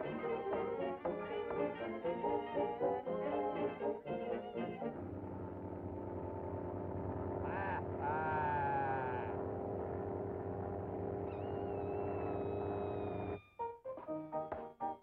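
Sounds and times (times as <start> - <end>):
cartoon plane engine drone: 3.4 - 13.4.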